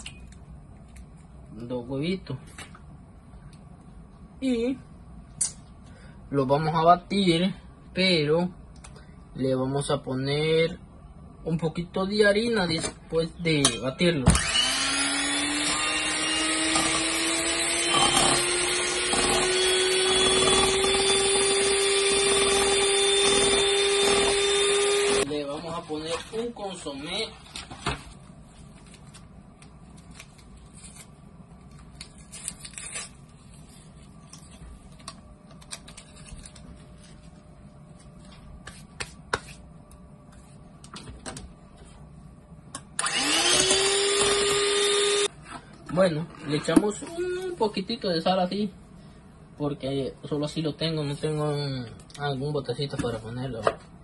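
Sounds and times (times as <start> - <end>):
electric mixer whipping eggs: 14.3 - 25.3, 43.0 - 45.3.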